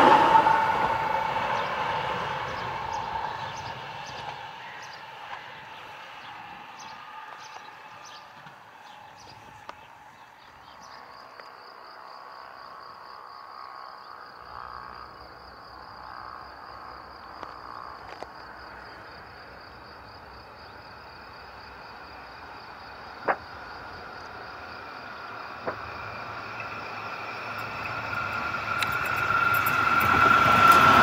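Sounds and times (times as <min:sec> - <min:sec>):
tram approaching on track: 0:00.0 - 0:13.0, 0:14.1 - 0:31.0
insect trilling: 0:12.4 - 0:18.8, 0:24.7 - 0:31.0.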